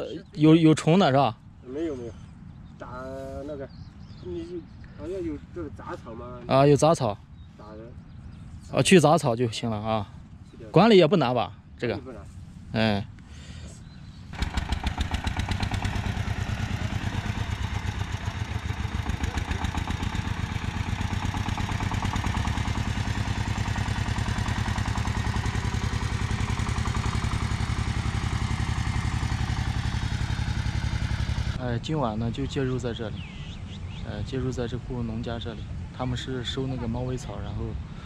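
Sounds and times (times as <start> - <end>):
small engine chugging: 14.3 - 31.6.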